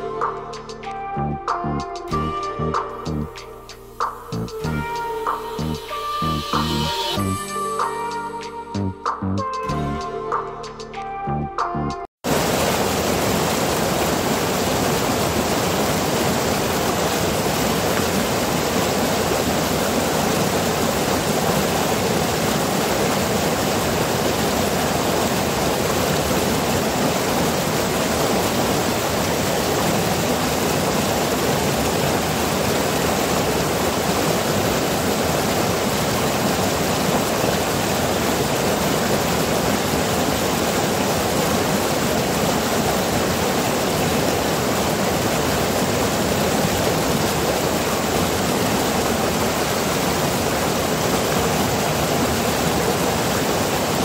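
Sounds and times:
stream rushing over rocks: 12.2s - 54.0s.

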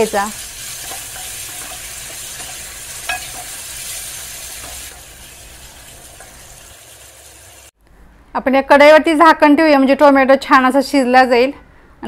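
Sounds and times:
tomatoes sizzling in oil: 0.0s - 7.8s
metal spoon scraping pan: 0.4s - 6.6s
spoon clinking against pan: 0.8s - 3.6s.

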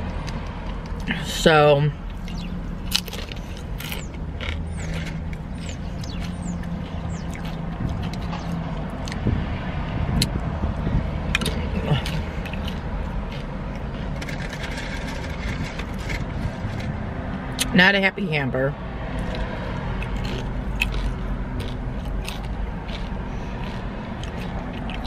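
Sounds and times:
car engine idling: 0.0s - 17.1s.

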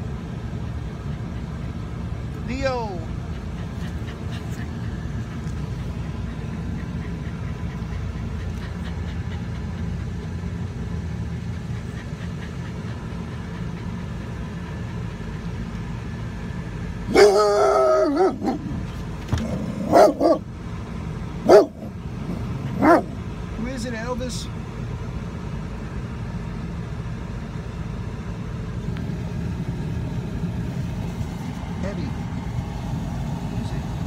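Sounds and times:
low rumble inside van: 0.0s - 34.0s
dog bark-howl: 17.1s - 18.8s, 19.8s - 20.5s, 21.5s - 21.8s, 22.8s - 23.1s
dog barking: 17.1s - 18.8s, 19.8s - 20.5s, 21.4s - 21.9s, 22.7s - 23.2s.

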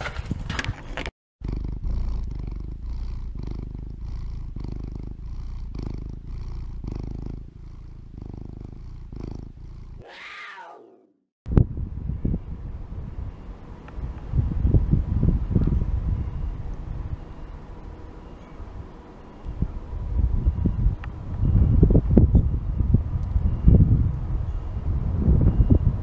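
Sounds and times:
cat purring: 1.4s - 10.1s.

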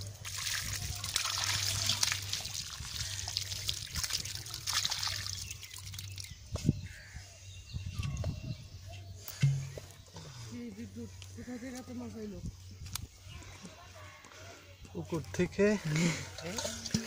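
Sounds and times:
water pouring into puddle: 0.0s - 6.4s
small splashes: 0.2s - 6.3s.

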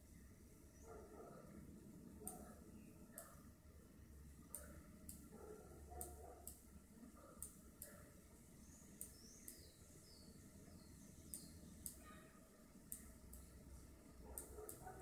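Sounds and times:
computer mouse clicks: 2.2s - 2.5s, 4.5s - 5.3s, 6.0s - 6.7s, 7.4s - 8.0s, 8.9s - 9.7s, 11.3s - 12.2s, 12.9s - 13.6s, 14.4s - 15.0s
faint high chirps: 7.8s - 13.6s.

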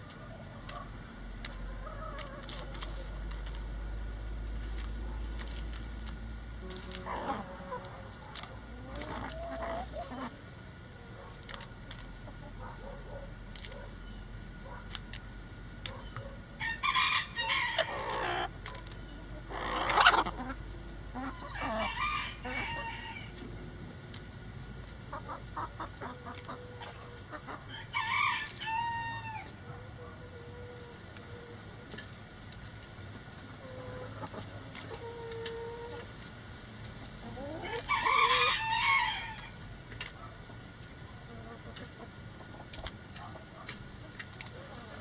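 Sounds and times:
roosters crowing: 0.0s - 4.3s, 6.5s - 14.8s, 15.9s - 23.8s, 25.1s - 31.8s, 37.2s - 39.7s
hens clucking: 0.0s - 45.0s.

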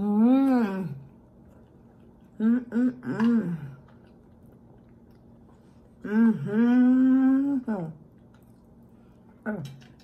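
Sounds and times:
woman humming mmm while eating: 2.4s - 3.9s, 6.0s - 8.0s.

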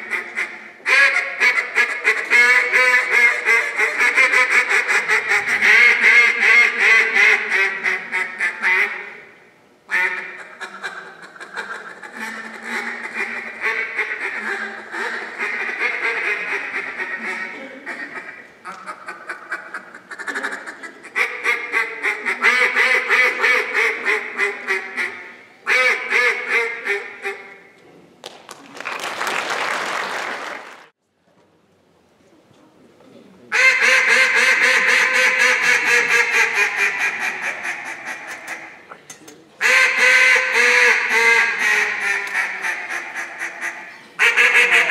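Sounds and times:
duck call quacks: 0.0s - 9.3s, 9.9s - 27.7s, 33.5s - 38.8s, 39.6s - 44.9s
applause: 28.2s - 30.9s.

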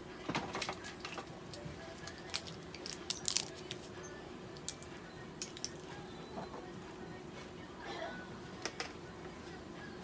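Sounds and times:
faint steady hum: 0.0s - 10.0s
small hard objects clinking: 2.0s - 3.9s.

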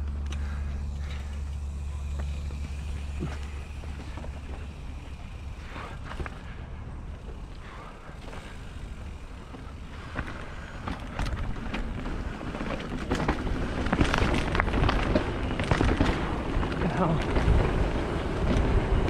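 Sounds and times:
bicycle tyres on dirt: 0.0s - 19.0s
bike rattling and knocking: 0.0s - 19.0s.

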